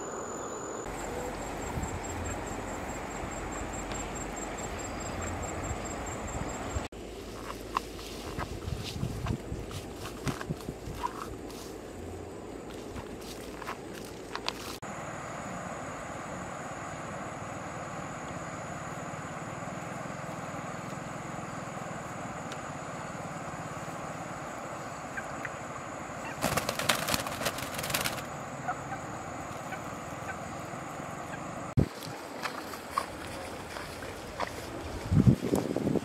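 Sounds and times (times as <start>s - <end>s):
outdoor background hiss: 0.0s - 36.0s
chicken wings flapping: 26.2s - 29.8s.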